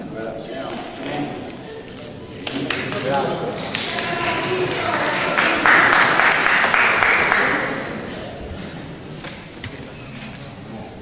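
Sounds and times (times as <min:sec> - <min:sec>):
crowd background: 0:00.0 - 0:11.0
audience applauding: 0:02.4 - 0:08.3.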